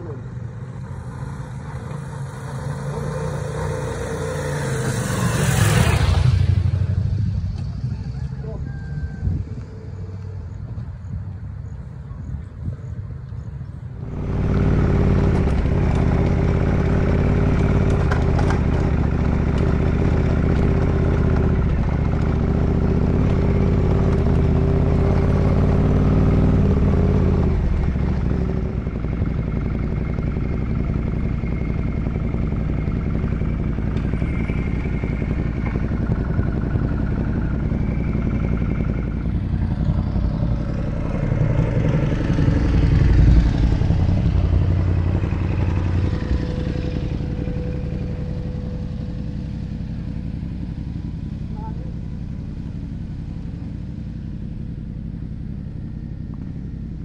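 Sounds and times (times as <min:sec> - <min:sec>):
motorcycle engine running: 0:00.0 - 0:57.0
road and wind noise: 0:00.0 - 0:57.0
clatter: 0:14.0 - 0:57.0.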